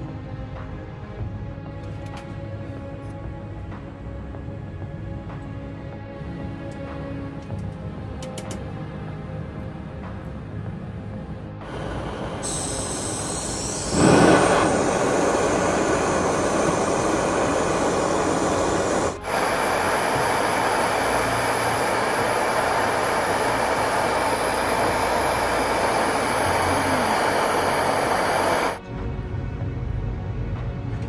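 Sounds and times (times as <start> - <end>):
gas torch flame rushing: 11.6 - 28.8.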